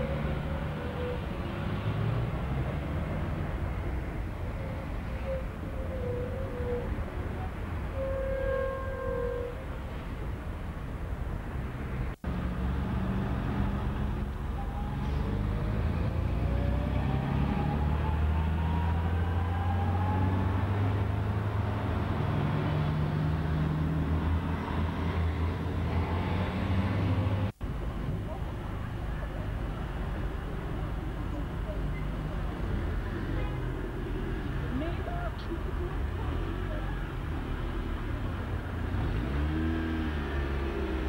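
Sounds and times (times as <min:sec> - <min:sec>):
car and bus engines droning: 0:00.0 - 0:41.0
vehicle accelerating whine: 0:12.3 - 0:27.6.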